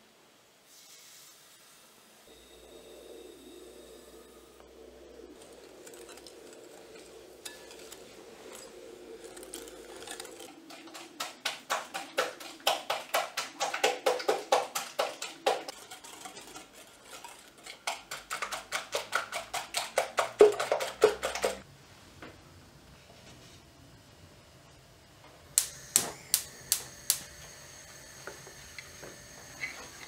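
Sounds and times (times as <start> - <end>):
whisk clicking against glass bowl: 9.3 - 21.6.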